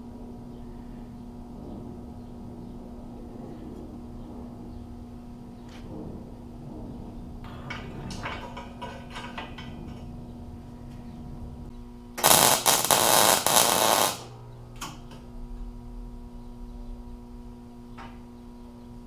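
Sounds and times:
steady hum: 0:00.0 - 0:19.0
welder arc crackling: 0:12.1 - 0:15.9.

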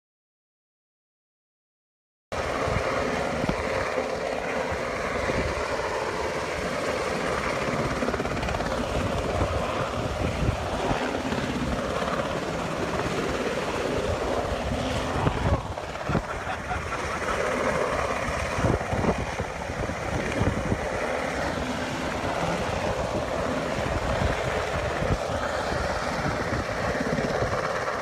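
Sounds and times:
helicopter rotor chop and whine: 0:02.4 - 0:28.0.

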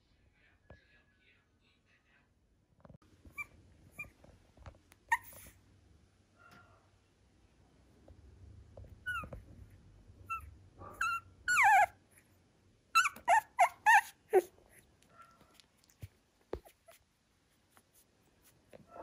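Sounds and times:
puppy squeaking and whimpering: 0:03.3 - 0:04.3, 0:05.0 - 0:05.6, 0:09.0 - 0:09.5, 0:10.2 - 0:12.3, 0:12.9 - 0:15.7, 0:16.6 - 0:17.1.

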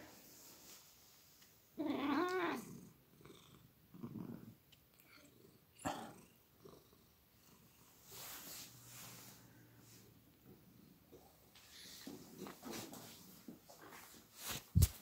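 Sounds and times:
cat meowing: 0:01.8 - 0:02.7.

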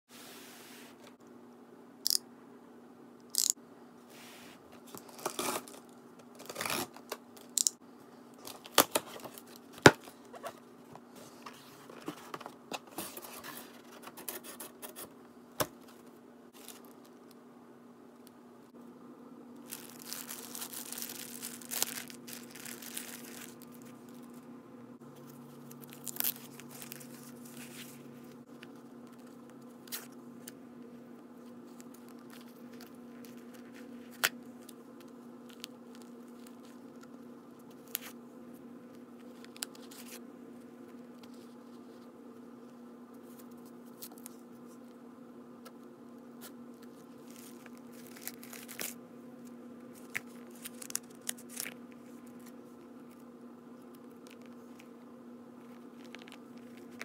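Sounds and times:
faint low hum: 0:00.2 - 0:57.0
packing tape tearing: 0:05.0 - 0:07.8, 0:19.7 - 0:23.8, 0:47.3 - 0:49.0
plastic bags rustling: 0:16.6 - 0:17.3, 0:19.6 - 0:24.4, 0:25.2 - 0:28.1, 0:47.1 - 0:49.0.

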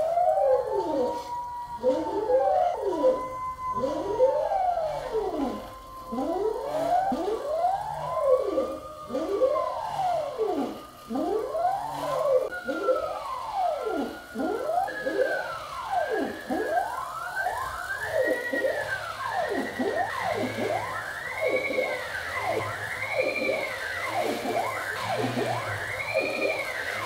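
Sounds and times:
stepper motors whining: 0:00.0 - 0:27.0.

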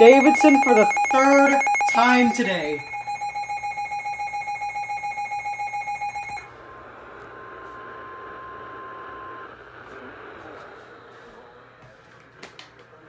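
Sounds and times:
rapid pulsing alarm beeps: 0:00.0 - 0:06.5
faint steady tone: 0:00.0 - 0:10.1.

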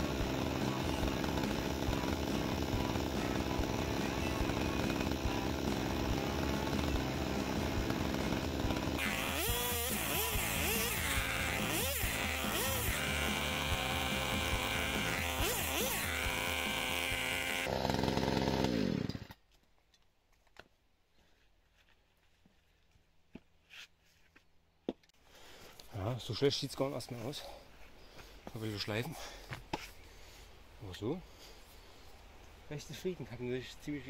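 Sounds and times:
chainsaw cutting wood: 0:00.0 - 0:19.4.

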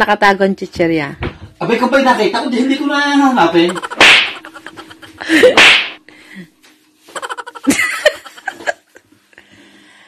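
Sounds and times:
person giggling: 0:03.6 - 0:05.6, 0:07.1 - 0:09.1.

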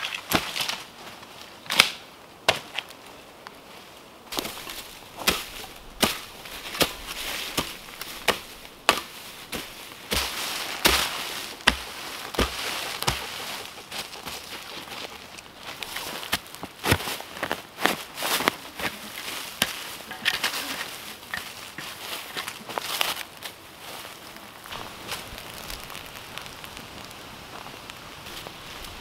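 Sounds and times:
soil and leaves scraping: 0:00.0 - 0:29.0
hoe chopping into soil: 0:04.3 - 0:13.4, 0:19.6 - 0:22.5.

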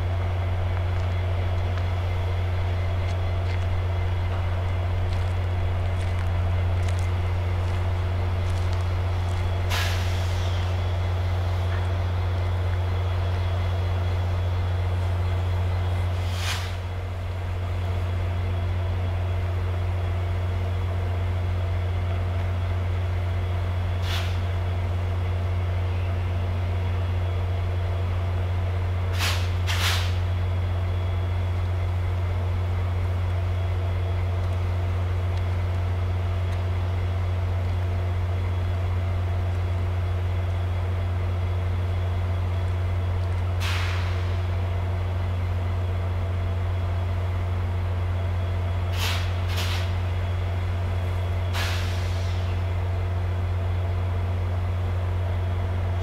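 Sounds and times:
diesel locomotive humming: 0:00.0 - 0:56.0
air brake hisses: 0:09.7 - 0:10.8, 0:16.1 - 0:16.9, 0:24.0 - 0:24.5, 0:29.1 - 0:30.3, 0:43.6 - 0:44.5, 0:48.9 - 0:50.0, 0:51.5 - 0:52.6.

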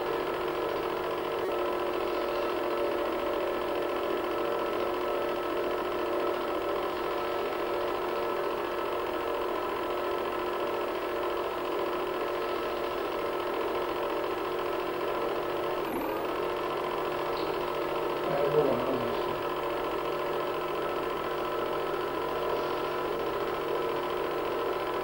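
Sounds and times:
film projector whirring: 0:00.0 - 0:25.0.

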